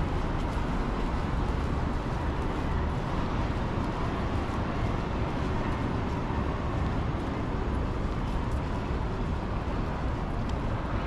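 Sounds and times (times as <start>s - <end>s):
low rumble of passing traffic: 0.0s - 11.0s.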